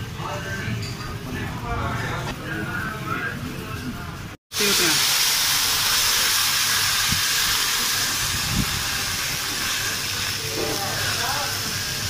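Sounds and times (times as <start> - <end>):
flatbread sizzling on a griddle: 4.5 - 12.0.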